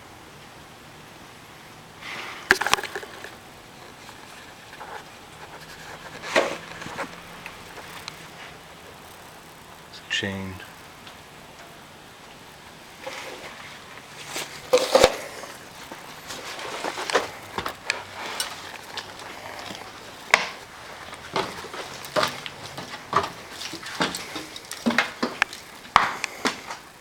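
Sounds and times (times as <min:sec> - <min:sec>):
footsteps crunching on debris: 0:13.0 - 0:27.0.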